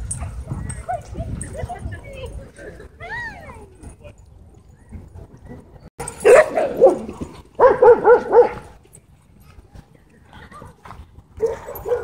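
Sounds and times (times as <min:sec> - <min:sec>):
dog barking: 0:06.0 - 0:08.6, 0:11.4 - 0:12.0.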